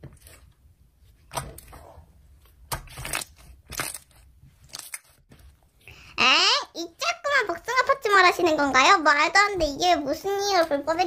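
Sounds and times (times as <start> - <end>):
slime crackling and popping: 2.7 - 5.2.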